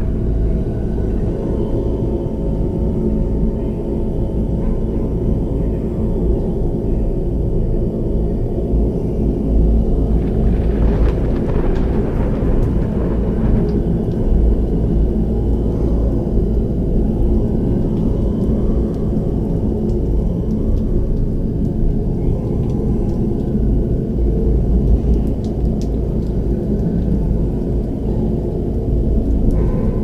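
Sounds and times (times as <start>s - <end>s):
deep ritual music drone: 0.0s - 30.0s.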